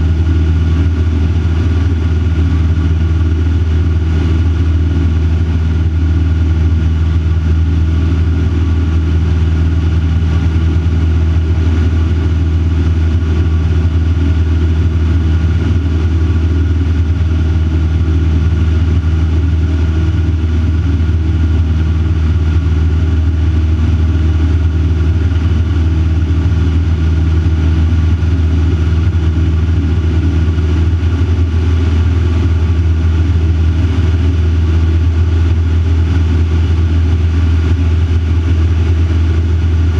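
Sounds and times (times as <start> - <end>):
aircraft engine and propeller droning: 0.0 - 39.9.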